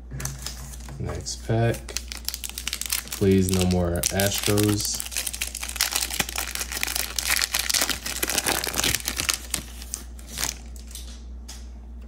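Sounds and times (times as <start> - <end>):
foil wrapper crinkling: 1.6 - 11.1.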